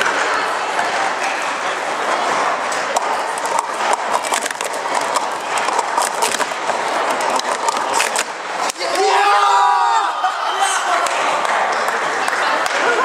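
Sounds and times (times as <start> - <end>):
plastic cups clattering: 1.2 - 9.0.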